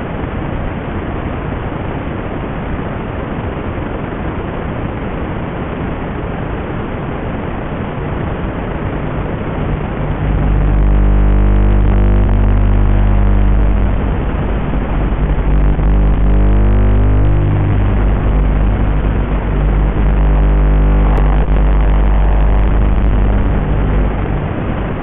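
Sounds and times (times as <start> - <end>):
static hiss: 2.7 - 25.0
low hum of held tones: 7.9 - 25.0.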